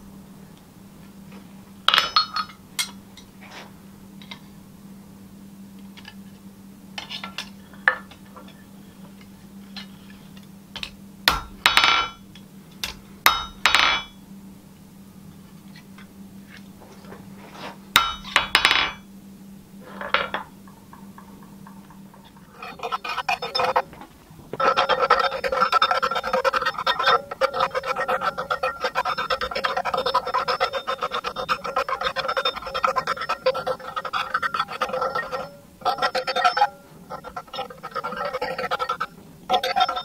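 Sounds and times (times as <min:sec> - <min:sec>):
steady low hum: 0:00.0 - 0:40.0
hammer striking metal on anvil: 0:01.9 - 0:03.0, 0:10.8 - 0:12.2, 0:12.8 - 0:14.2, 0:18.0 - 0:19.0.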